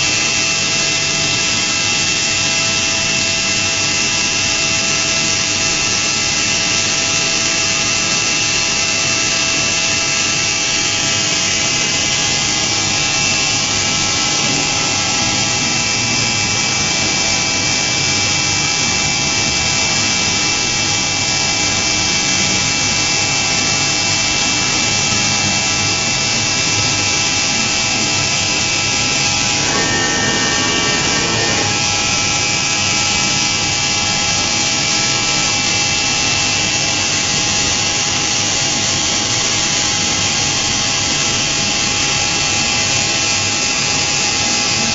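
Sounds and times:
spindle whine: 28.3 - 33.8
machining noise: 28.6 - 32.8.

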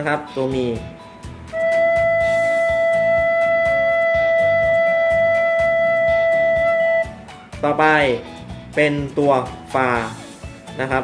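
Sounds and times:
recorder holding a steady note: 1.5 - 7.2.

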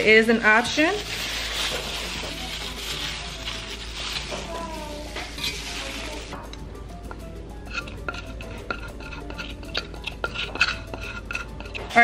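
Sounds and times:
soft background music: 0.0 - 12.0
hand working meat in a pot: 0.4 - 12.0
spatula scraping clay jar: 7.6 - 12.0.

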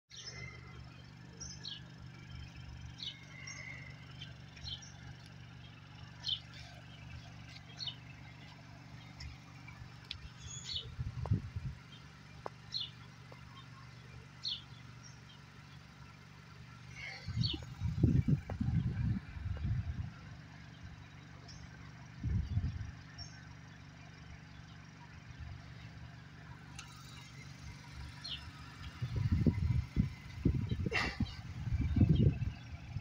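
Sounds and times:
car engine rumbling: 0.1 - 33.0
small bird chirping: 1.3 - 16.0, 17.0 - 19.8, 27.0 - 33.0.

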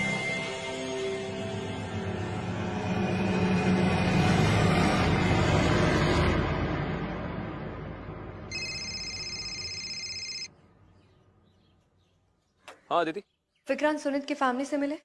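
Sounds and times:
mobile phone ringing: 8.5 - 10.5.

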